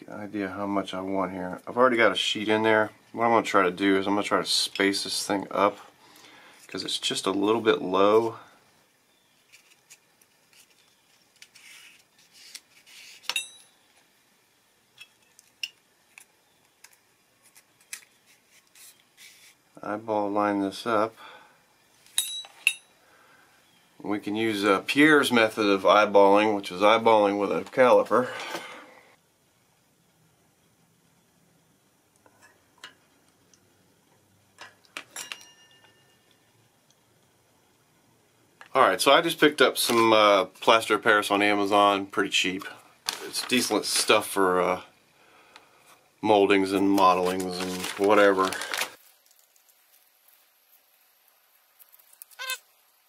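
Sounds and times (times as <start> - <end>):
paper rustling: 9.4 - 13.3, 16.8 - 19.6, 43.0 - 44.3, 46.8 - 50.4
metal clink with ring: 13.3 - 13.8, 22.2 - 23.0, 35.1 - 36.4
small metal parts clicking and tapping: 49.1 - 51.0, 51.8 - 52.6.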